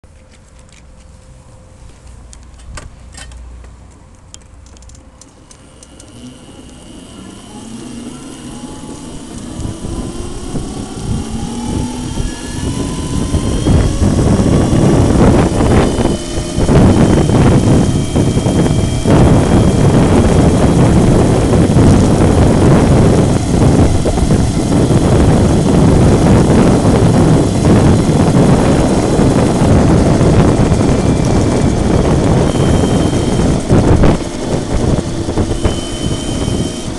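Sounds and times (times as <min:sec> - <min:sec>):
wind and road noise: 0:00.0 - 0:36.9
electric scooter motor whining: 0:04.8 - 0:36.9.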